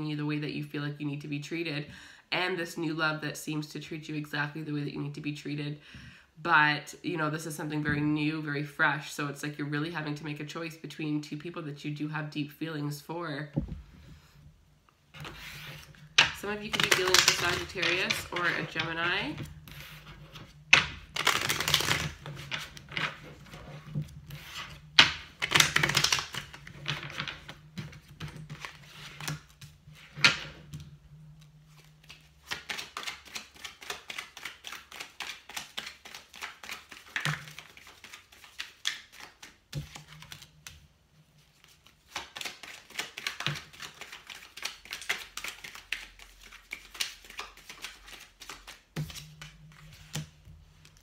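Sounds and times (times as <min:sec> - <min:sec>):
cards being shuffled: 0:15.1 - 0:40.8, 0:41.4 - 0:51.0.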